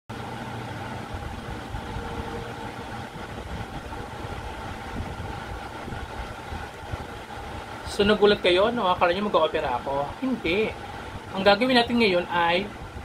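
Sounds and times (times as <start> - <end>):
faint whine: 0.1 - 13.0
motor hum and rumble: 0.1 - 13.0.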